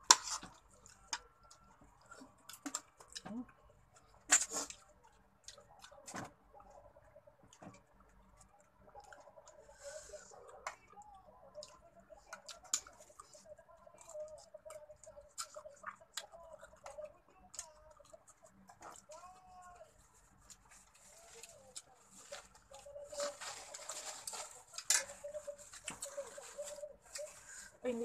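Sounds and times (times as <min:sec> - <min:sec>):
lip smacking and chewing: 0:00.5 - 0:22.9.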